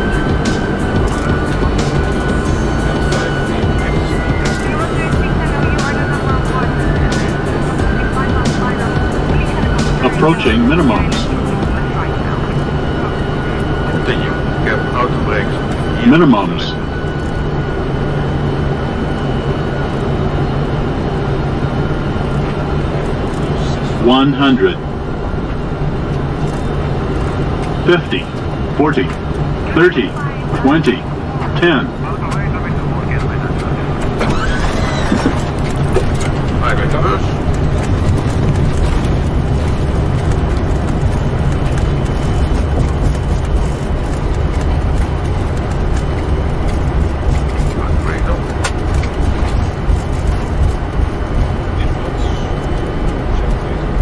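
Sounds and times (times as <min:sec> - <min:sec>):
airplane rolling on runway: 0:00.0 - 0:54.0
rushing airflow over cockpit: 0:00.0 - 0:54.0
steady low hum: 0:00.0 - 0:54.0.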